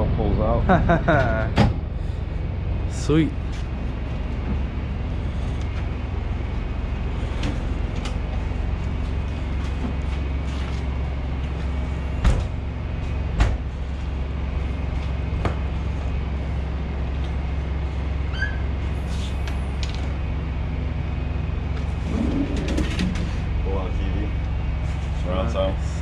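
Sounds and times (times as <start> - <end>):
diesel engine hum: 0.0 - 26.0
metal doors shutting: 12.2 - 12.6, 18.3 - 19.3.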